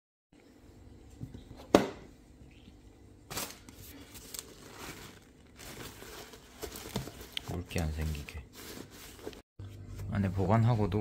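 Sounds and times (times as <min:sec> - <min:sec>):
paper towels rustling: 0:03.3 - 0:11.0.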